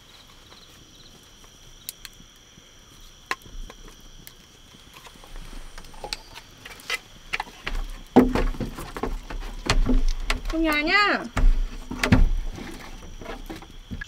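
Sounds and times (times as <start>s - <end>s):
night insects trilling: 0.0s - 14.0s
sharp clicks and knocks: 5.8s - 14.0s.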